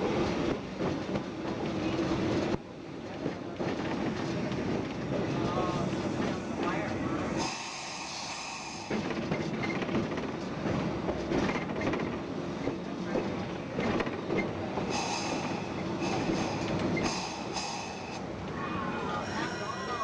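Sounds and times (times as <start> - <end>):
streetcar wheels clicking over rail joints: 8.8 - 18.6
high-pitched wheel squeal: 18.8 - 20.0.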